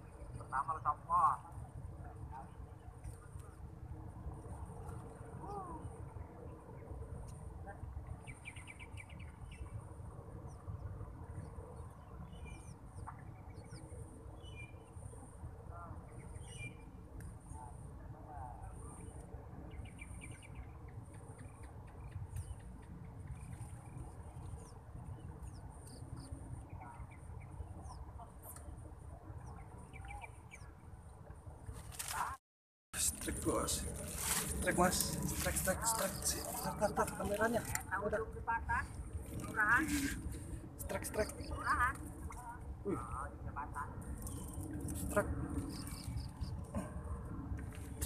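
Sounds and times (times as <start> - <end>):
small birds chirping: 4.8 - 31.1, 33.0 - 46.9
steady low rumble: 33.0 - 48.0.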